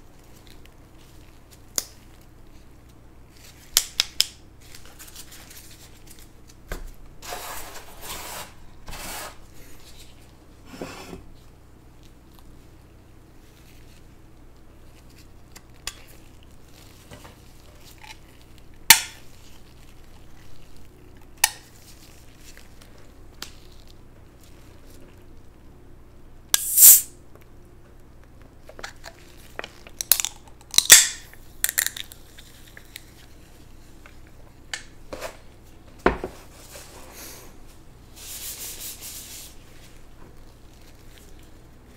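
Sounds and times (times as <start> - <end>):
brief scrapes: 26.6 - 27.1.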